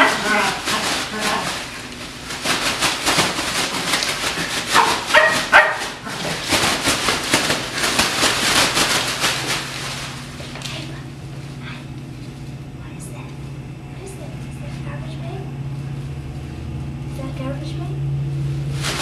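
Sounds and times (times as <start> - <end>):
puppy barking: 0.0 - 1.5, 4.7 - 6.4
plastic bag crinkling: 0.0 - 11.0, 18.6 - 19.0.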